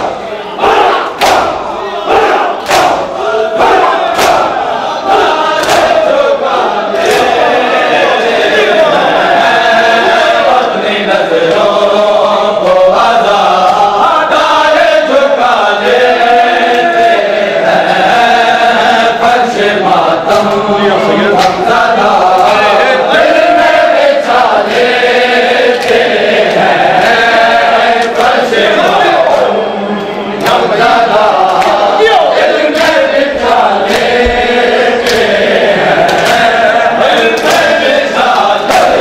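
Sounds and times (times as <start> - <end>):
men chanting together: 0.0 - 39.0
hands slapping chests: 1.2 - 1.6, 2.6 - 3.1, 4.1 - 4.6, 5.6 - 6.0, 21.4 - 21.6, 25.7 - 27.2, 31.4 - 31.9, 32.7 - 35.4, 36.0 - 39.0.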